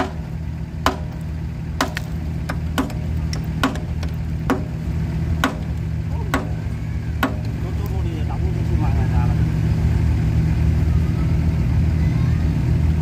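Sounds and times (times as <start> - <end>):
sledgehammer striking steel: 0.0 - 7.6
low engine hum: 0.0 - 13.0.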